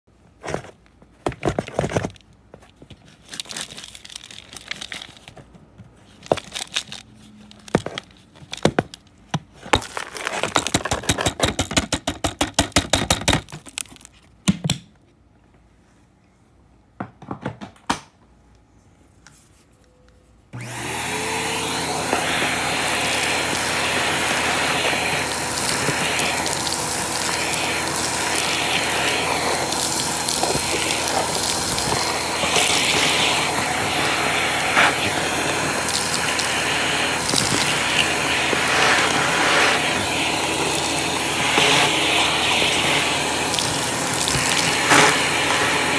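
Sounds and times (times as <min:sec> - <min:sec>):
plastic canister clicking and rattling: 0:07.6 - 0:14.8
hose sucking up debris: 0:20.6 - 0:45.9
vacuum cleaner motor running: 0:20.6 - 0:45.9.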